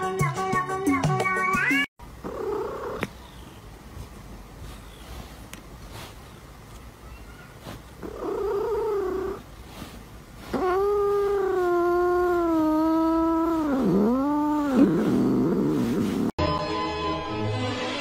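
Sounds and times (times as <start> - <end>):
cat yowling: 7.0 - 9.4, 10.4 - 16.3.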